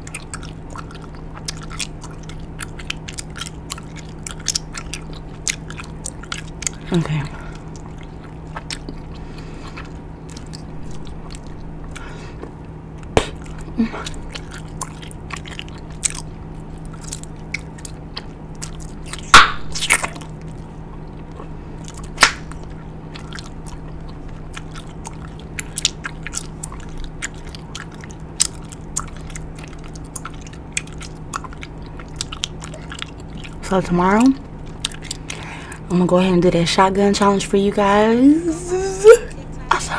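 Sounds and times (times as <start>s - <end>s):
gum snaps: 0.0s - 6.8s, 7.8s - 20.6s, 21.2s - 33.6s, 34.7s - 35.4s
gum chewing smacks: 0.0s - 33.7s, 34.3s - 35.4s.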